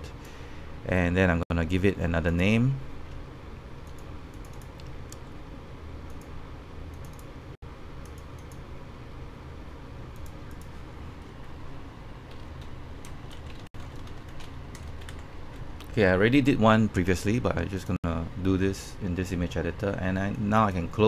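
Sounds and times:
steady low hum: 0.0 - 21.0
computer mouse clicks: 3.8 - 5.3, 6.1 - 6.3, 6.9 - 7.3, 8.0 - 8.6, 10.1 - 10.8
keyboard typing: 3.8 - 5.3, 6.9 - 7.3, 10.1 - 10.8, 12.3 - 16.0.

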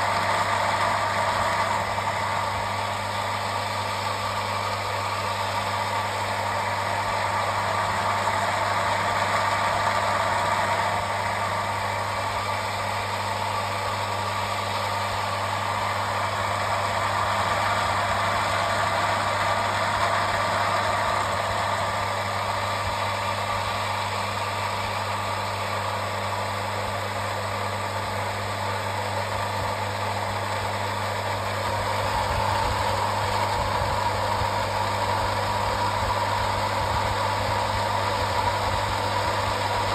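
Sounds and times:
electric water pump running: 0.0 - 39.9.

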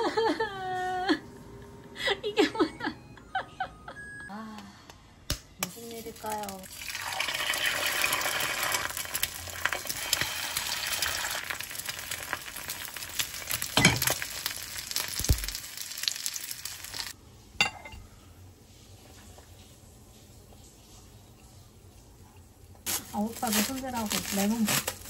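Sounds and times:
eggs sizzling in a pan: 5.6 - 17.2.

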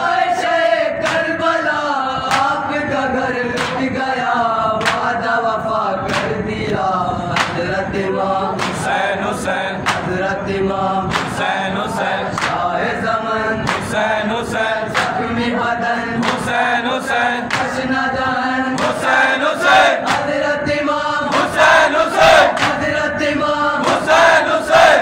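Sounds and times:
men chanting in unison: 0.0 - 25.0
chest-beating slaps: 1.0 - 1.3, 2.2 - 2.6, 3.6 - 3.9, 4.8 - 5.1, 7.4 - 7.6, 8.6 - 8.8, 9.9 - 10.1, 11.1 - 11.4, 20.0 - 20.4, 22.5 - 22.8.

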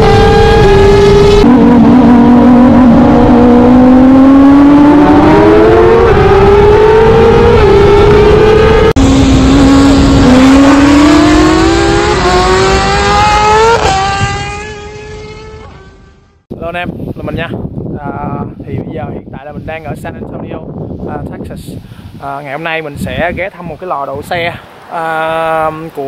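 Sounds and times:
motorcycle engine accelerating: 0.0 - 16.5.

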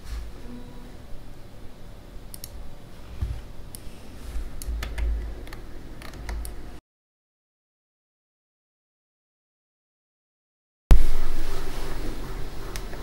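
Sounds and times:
fingers clicking filament: 2.3 - 2.6
low rumble: 10.9 - 13.0.

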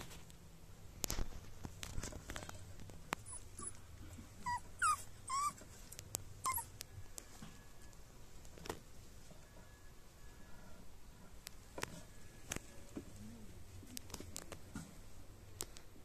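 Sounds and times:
puppy whimpering: 3.2 - 6.9.

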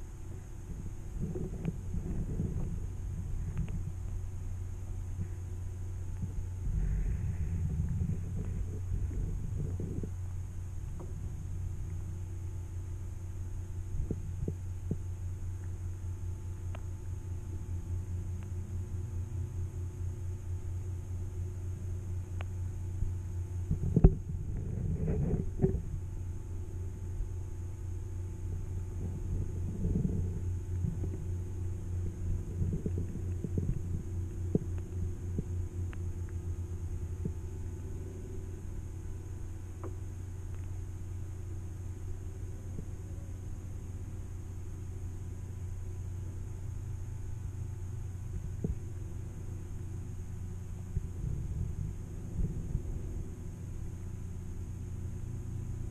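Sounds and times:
low underwater hum throbbing: 0.0 - 55.9
faint clicks: 3.4 - 4.2, 22.4 - 22.6, 39.8 - 40.8.

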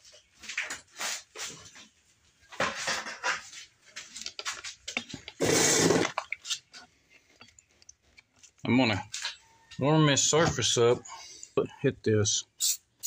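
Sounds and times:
spray hissing bursts: 12.6 - 12.9.

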